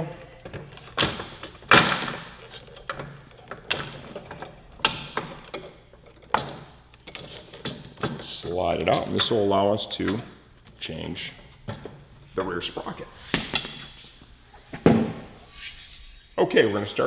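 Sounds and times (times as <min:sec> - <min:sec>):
metal parts clunking and knocking: 0:00.4 - 0:08.2.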